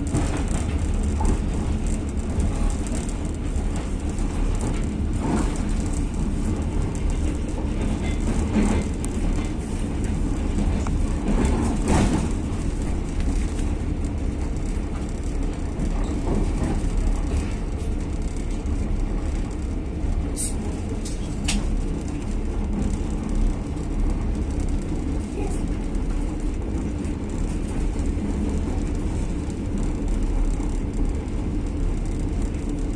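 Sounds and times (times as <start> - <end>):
train wheels rumbling on rails: 0.0 - 32.9.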